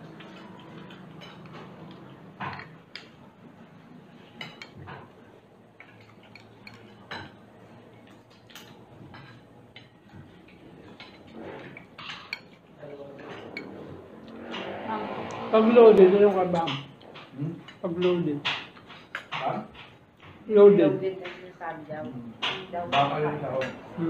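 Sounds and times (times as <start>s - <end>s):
cutlery clinking on plates: 0.2s - 3.2s, 4.3s - 5.1s, 5.8s - 14.8s, 16.3s - 20.4s, 22.4s - 23.9s.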